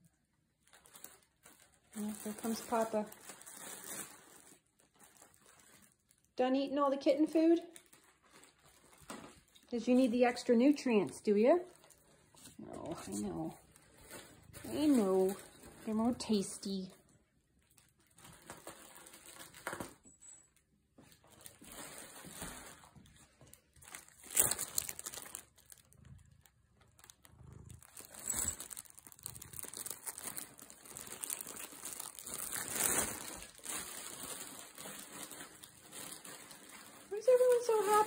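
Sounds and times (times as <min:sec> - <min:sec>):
fabric tunnel crinkling: 0:00.6 - 0:06.4, 0:11.5 - 0:16.9, 0:21.1 - 0:38.0.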